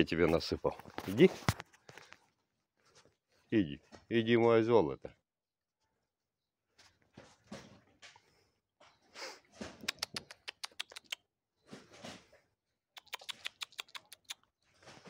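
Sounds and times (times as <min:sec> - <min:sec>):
squirrel chattering: 0:09.8 - 0:11.2, 0:13.0 - 0:14.4.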